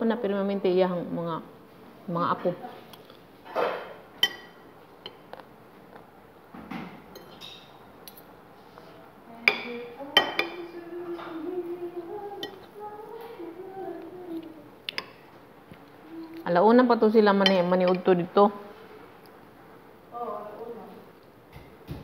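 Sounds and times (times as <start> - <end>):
cutlery clinking on a plate: 7.1 - 8.3, 9.5 - 11.3.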